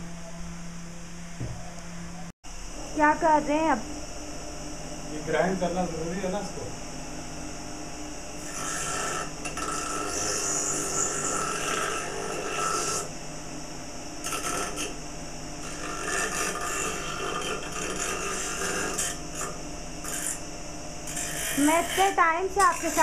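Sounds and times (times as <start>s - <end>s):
bench grinder running: 8.3s - 13.2s, 14.1s - 15.0s, 15.6s - 23.0s
wood grinding on wheel: 8.4s - 13.1s, 14.2s - 15.0s, 15.6s - 20.4s, 21.0s - 23.0s.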